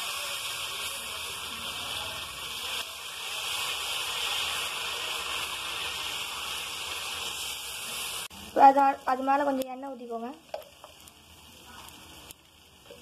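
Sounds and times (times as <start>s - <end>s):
batter sizzling on hot griddle: 0.0s - 13.0s.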